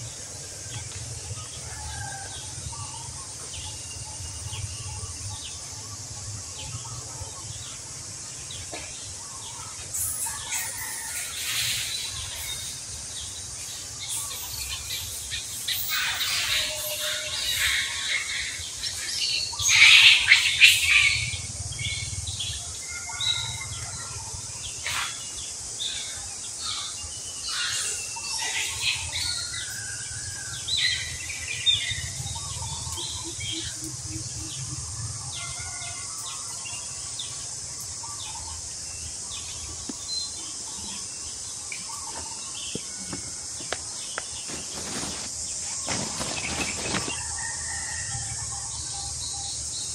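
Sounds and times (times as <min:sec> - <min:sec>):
steady high-pitched hiss: 0:00.0 - 0:49.9
high chirping animal calls: 0:14.1 - 0:21.5.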